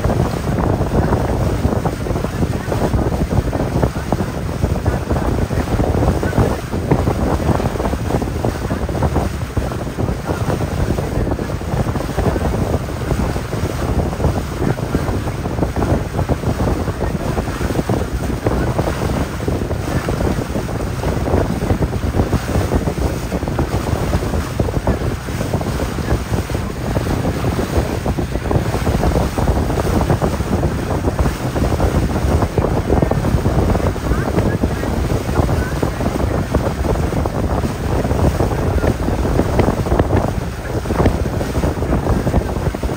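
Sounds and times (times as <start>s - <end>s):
water rushing: 0.0s - 42.9s
wind buffeting microphone: 0.0s - 42.9s.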